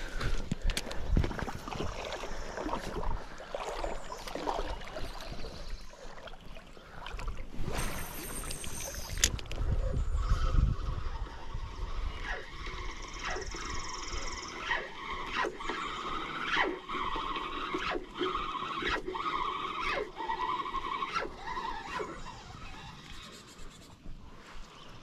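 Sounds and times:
fishing reel gear whine: 7.6 - 24.0.

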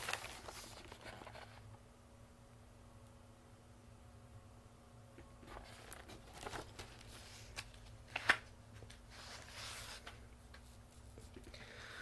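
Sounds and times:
paper pages rustling: 0.0 - 1.6, 5.4 - 11.4.

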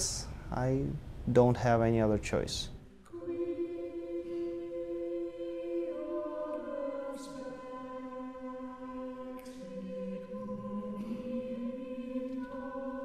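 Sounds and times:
choir singing held notes: 2.9 - 13.0.

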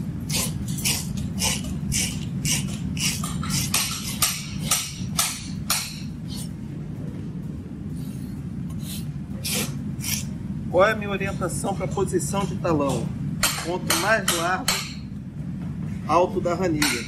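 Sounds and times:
rasp scraping horse hoof: 0.3 - 5.0.

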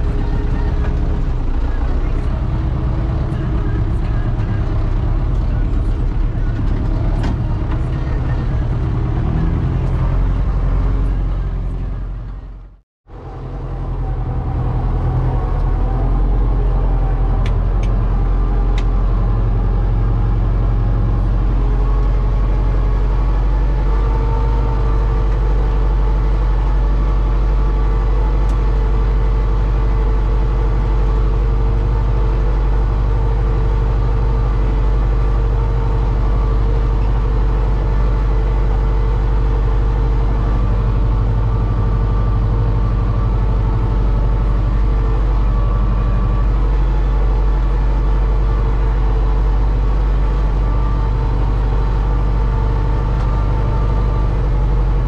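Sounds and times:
steady whine: 0.0 - 55.0
tractor diesel engine running: 0.0 - 55.0.

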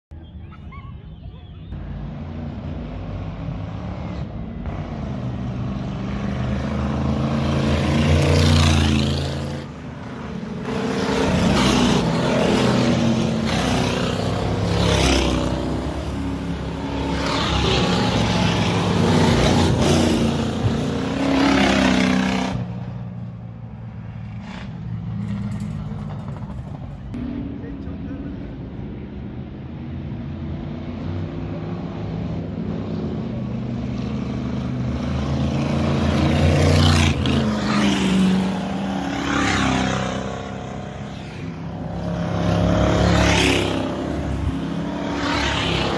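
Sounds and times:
race car engines passing: 0.2 - 45.9.

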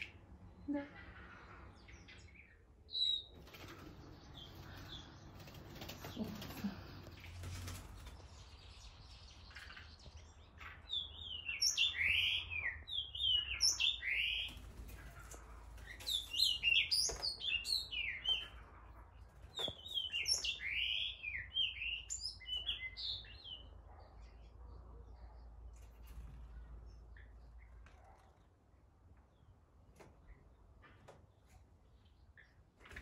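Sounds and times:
bird singing whistled notes: 11.0 - 14.5, 19.6 - 23.6.

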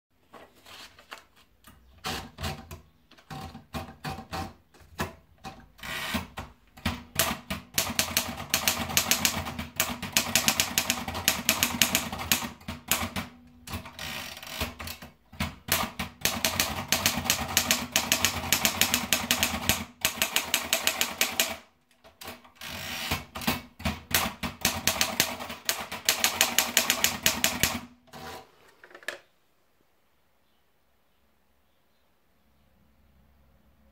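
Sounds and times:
typewriter keystrokes: 5.8 - 27.9.

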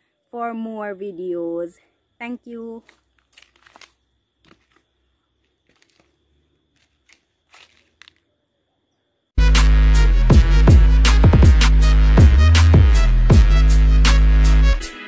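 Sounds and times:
loud electronic music: 9.4 - 15.0.

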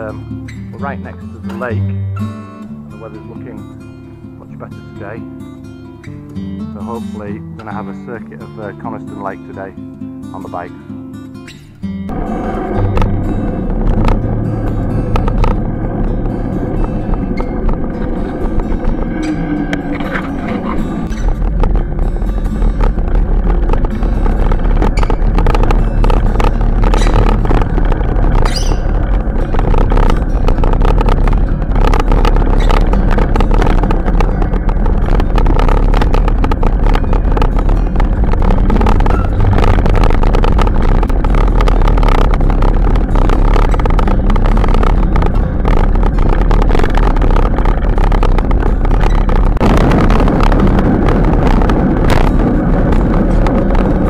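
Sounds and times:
bicycle tyre noise: 11.4 - 54.0
bicycle rattling: 11.5 - 54.0
wind buffeting microphone: 11.7 - 54.0.

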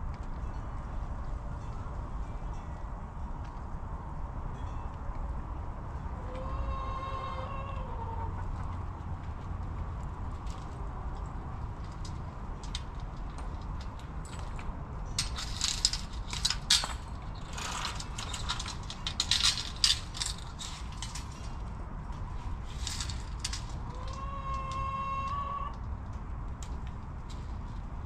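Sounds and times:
hens pecking and scratching: 6.2 - 27.9.

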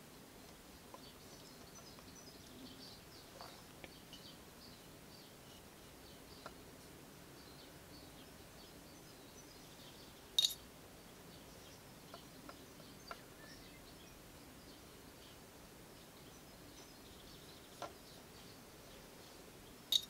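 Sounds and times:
faint bird chirps: 7.3 - 20.0.

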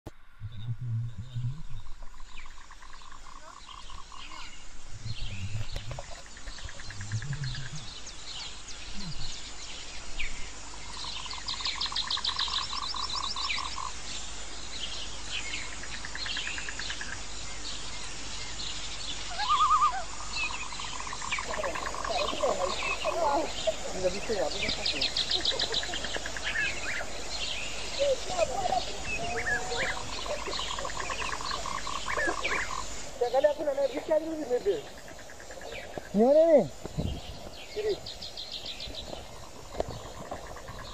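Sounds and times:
frog-like croaks: 0.4 - 8.0, 19.3 - 27.2, 27.8 - 33.2, 34.7 - 37.1, 39.3 - 40.9
pulsed chirping trills: 19.2 - 40.9.

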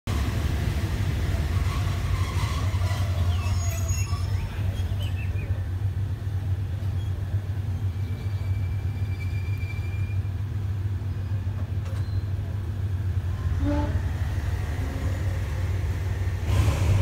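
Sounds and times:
train rolling with low rumble: 0.1 - 17.0
short high squeaks: 2.1 - 5.0, 8.1 - 10.4.

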